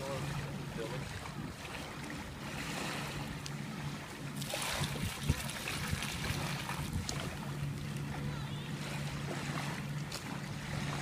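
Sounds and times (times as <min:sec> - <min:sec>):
steady low hum: 0:00.0 - 0:11.0
wind on microphone: 0:04.5 - 0:07.5.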